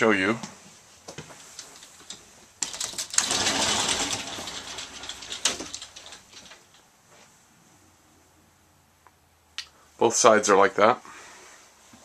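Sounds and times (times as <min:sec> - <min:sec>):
wardrobe doors scraping open: 0:02.7 - 0:06.7.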